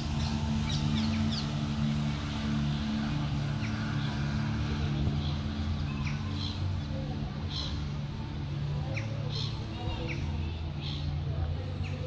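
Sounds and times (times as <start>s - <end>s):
low engine drone: 0.0s - 12.0s.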